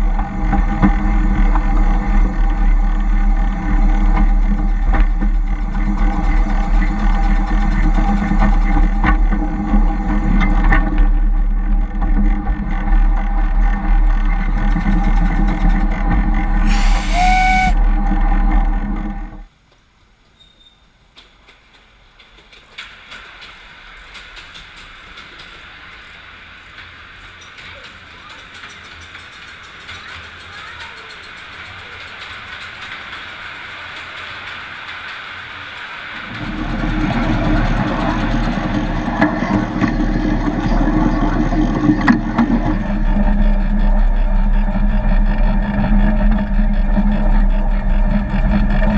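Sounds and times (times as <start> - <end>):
miniature locomotive running: 0.0 - 19.5, 21.2 - 48.9
train wheels clicking over rail joints: 0.0 - 19.5, 21.0 - 48.9
constant low hum: 0.0 - 19.8, 36.0 - 48.9
steady hiss: 16.5 - 17.8, 19.6 - 36.4.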